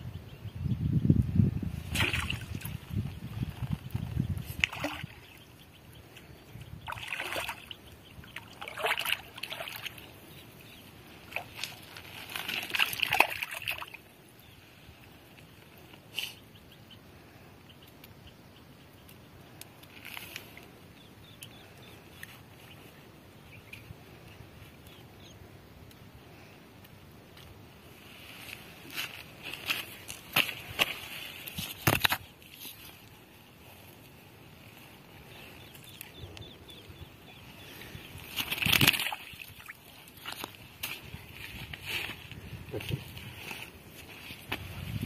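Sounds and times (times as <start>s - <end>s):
water splashing and sloshing: 1.8s - 2.8s, 4.5s - 5.4s, 6.8s - 14.0s, 38.1s - 42.1s.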